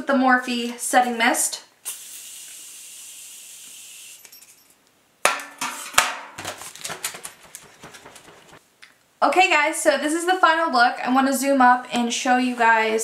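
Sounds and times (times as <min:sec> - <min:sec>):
setting mist spray hiss: 0:01.8 - 0:04.2.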